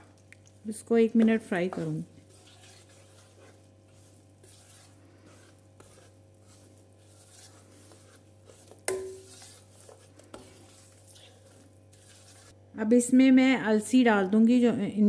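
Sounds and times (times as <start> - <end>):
spatula scraping a pan: 1.2 - 12.6.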